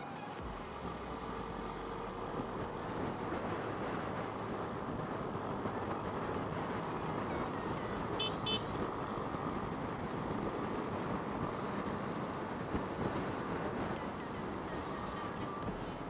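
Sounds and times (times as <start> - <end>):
wind and road rush: 0.0 - 16.0
short high beeps: 6.4 - 8.4.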